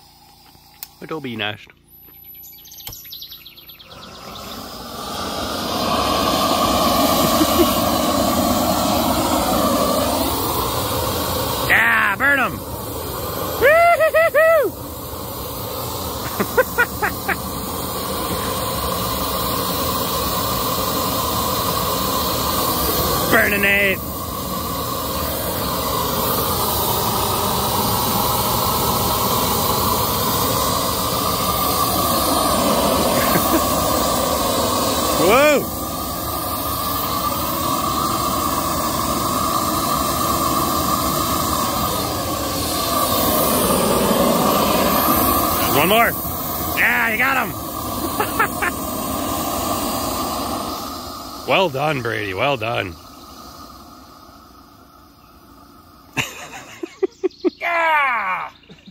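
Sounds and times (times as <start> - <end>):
propane torch hissing: 0.0 - 58.9
short chirping calls: 1.7 - 5.0, 56.8 - 58.9.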